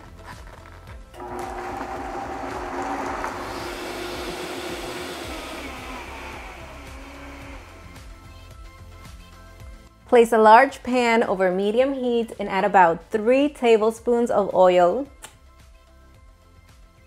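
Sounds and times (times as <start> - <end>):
blender motor blending liquid: 1.2 - 8.3.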